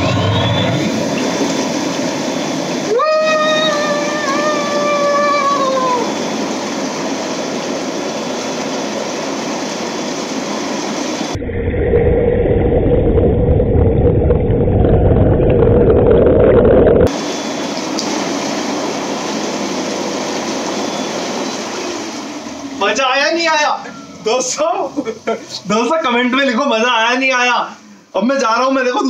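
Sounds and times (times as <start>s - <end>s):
water churning and bubbling: 0.0s - 26.2s
muffled deep rumble: 11.4s - 17.1s
air blower humming: 17.1s - 26.1s.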